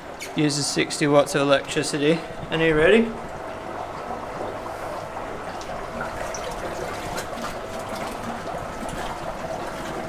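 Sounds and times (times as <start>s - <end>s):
water gushing and splashing: 3.2s - 10.0s.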